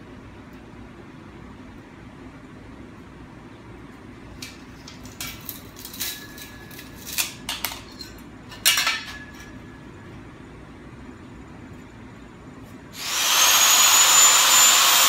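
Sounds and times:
tools clicking tapping and scraping: 4.4s - 9.6s.

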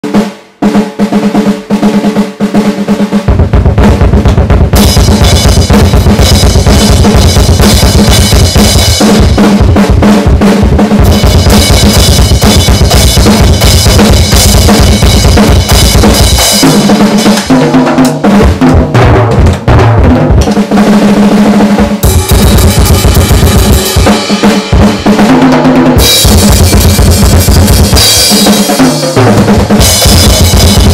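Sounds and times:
bass drum: 3.2s - 20.7s, 21.6s - 30.9s
snare hits: 17.2s - 18.2s.

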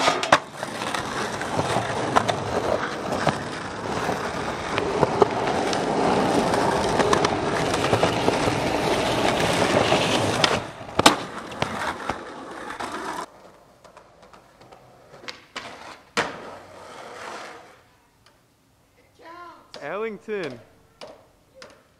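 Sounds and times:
skateboard sharp clack: 0.0s - 3.6s, 4.7s - 16.6s
skateboard wheels rolling on asphalt: 0.0s - 17.9s.

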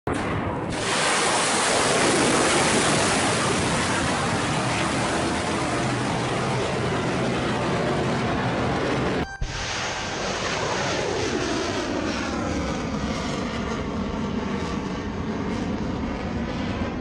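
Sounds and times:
rocket booster roaring: 0.1s - 13.0s.

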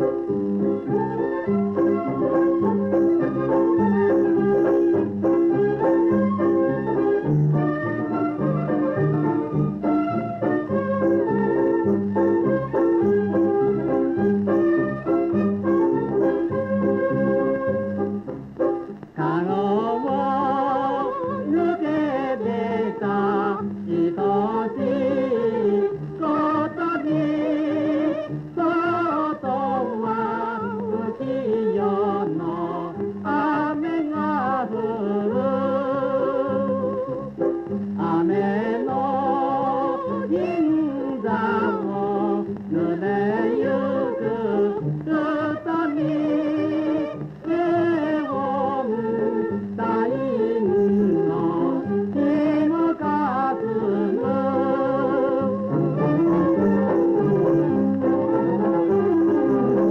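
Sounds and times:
person singing with wide vibrato: 19.2s - 37.3s, 38.0s - 57.0s
orchestral accompaniment: 55.7s - 59.9s.

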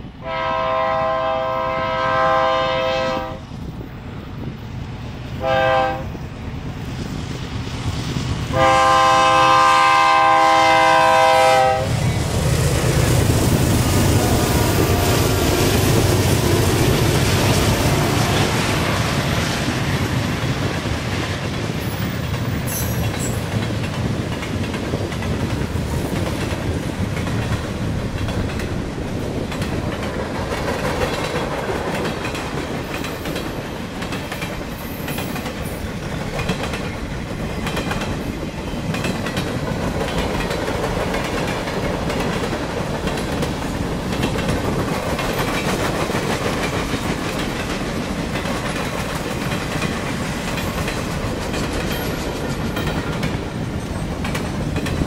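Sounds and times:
train wheels clickety-clack: 0.0s - 55.0s.

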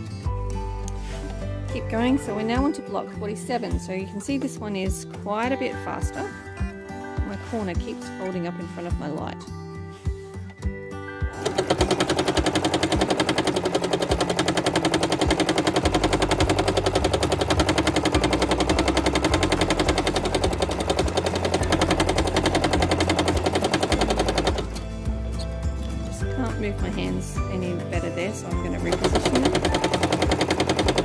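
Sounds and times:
sewing machine rapid rattle: 11.4s - 24.8s, 28.8s - 31.0s.

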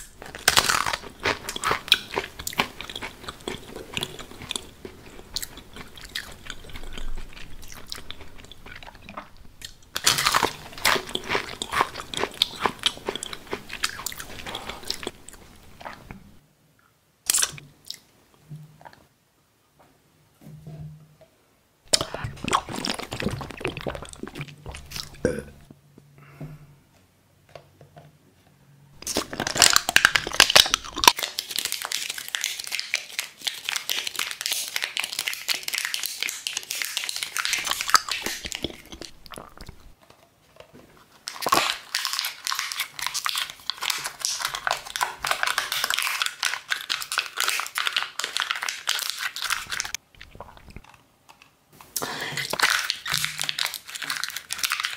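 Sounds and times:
brittle plastic crackling and crunching: 0.0s - 15.2s, 29.0s - 54.9s.

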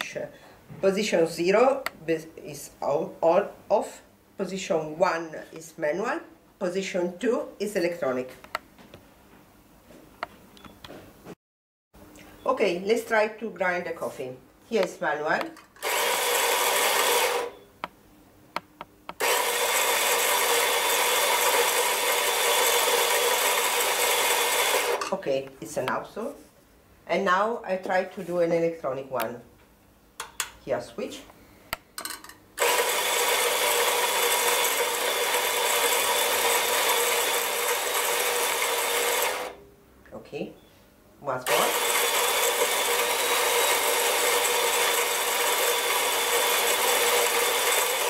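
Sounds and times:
coffee grinder motor grinding: 15.8s - 17.6s, 19.2s - 25.0s, 32.6s - 39.6s, 41.5s - 48.0s.

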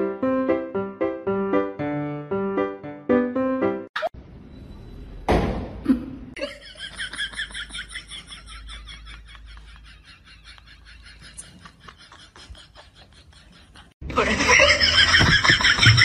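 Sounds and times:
piano tune: 0.0s - 4.1s
person giggling: 5.8s - 16.0s.

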